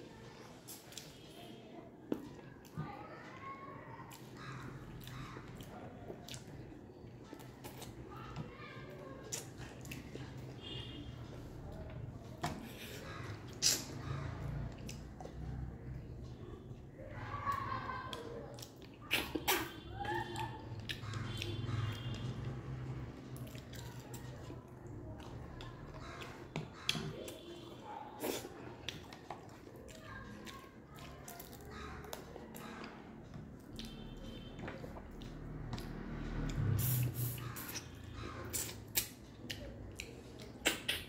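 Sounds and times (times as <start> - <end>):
mouth sucking and chewing: 12.7 - 15.1, 18.6 - 19.8, 25.2 - 29.7, 33.6 - 41.0
squeaky slurps: 12.8 - 14.4, 19.0 - 22.9, 27.6 - 29.0, 36.0 - 39.2
wet smacks and clicks: 13.4 - 14.0, 18.1 - 22.5, 37.4 - 41.0.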